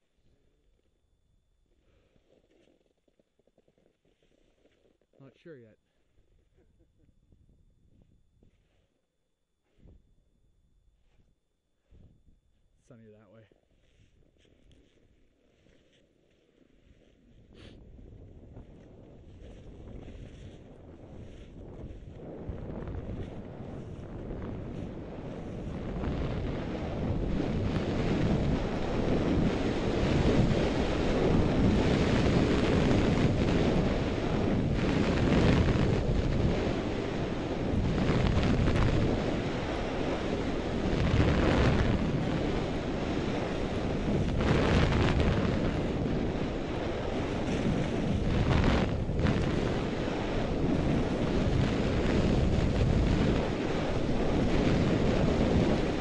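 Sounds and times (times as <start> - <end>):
wind rushing over microphone: 7.1 - 8.8, 16.8 - 56.0
skis scraping on snow: 13.8 - 56.0.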